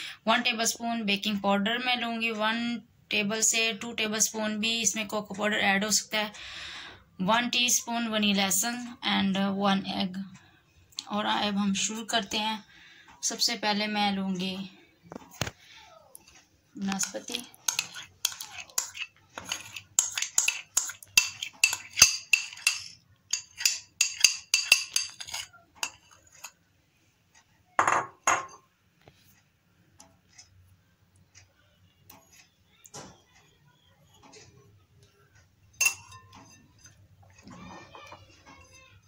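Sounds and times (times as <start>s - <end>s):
utensil scraping glass dishes: 17.0s - 26.6s, 35.8s - 38.9s.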